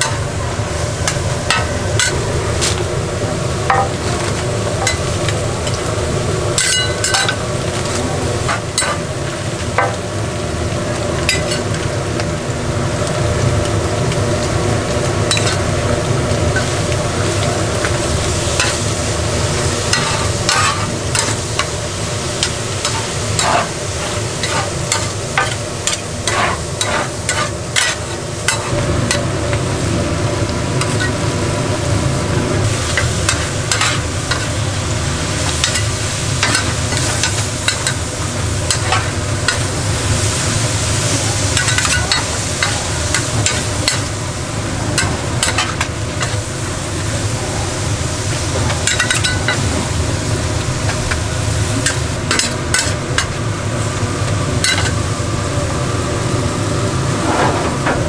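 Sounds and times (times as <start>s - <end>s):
food sizzling in a pan: 0.0s - 57.9s
utensils scraping a pan: 19.9s - 21.4s, 22.4s - 28.8s.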